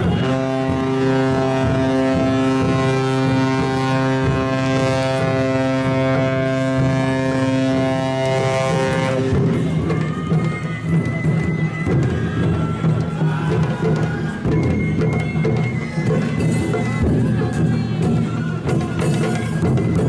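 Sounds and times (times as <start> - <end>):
ship's horn long blast: 0.0 - 9.5.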